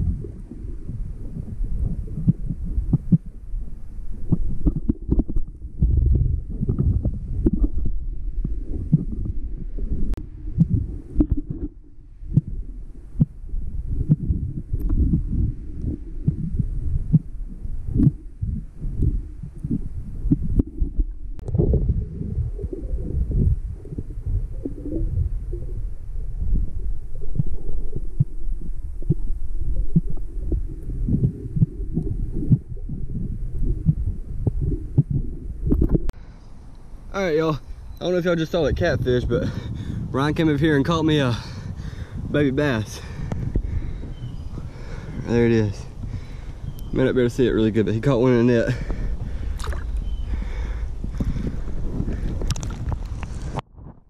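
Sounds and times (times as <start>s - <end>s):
underwater water rumbling: 0.0s - 54.0s
soft underwater knocks and thuds: 4.2s - 9.4s, 14.0s - 17.3s, 49.6s - 50.0s.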